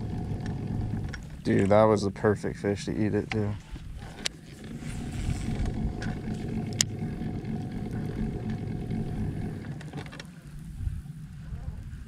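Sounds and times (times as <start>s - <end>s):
electric trolling motor running: 0.0s - 1.5s, 3.9s - 11.1s.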